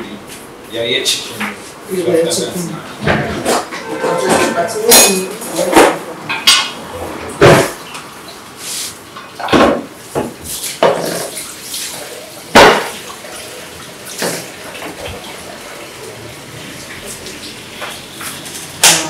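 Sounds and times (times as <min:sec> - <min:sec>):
dishes and utensils clattering: 0:03.0 - 0:08.0, 0:09.1 - 0:13.1, 0:14.1 - 0:15.5
running water hiss: 0:08.6 - 0:09.1.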